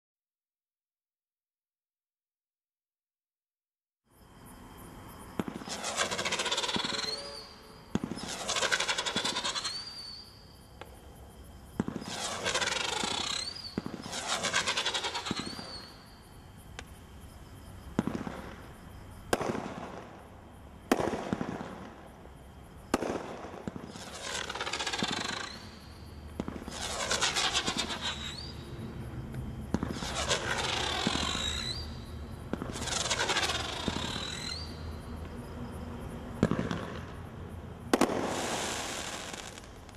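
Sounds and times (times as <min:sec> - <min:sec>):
firework bangs: 0:05.3 - 0:10.2, 0:11.7 - 0:16.2, 0:17.9 - 0:22.2, 0:22.8 - 0:28.6, 0:29.6 - 0:34.9, 0:36.3 - 0:37.2, 0:37.8 - 0:39.9
firework pops with whistle: 0:05.3 - 0:11.0, 0:11.7 - 0:16.1, 0:17.9 - 0:18.7, 0:19.3 - 0:20.2, 0:22.9 - 0:28.6, 0:29.3 - 0:35.4, 0:36.4 - 0:37.2, 0:37.9 - 0:39.9.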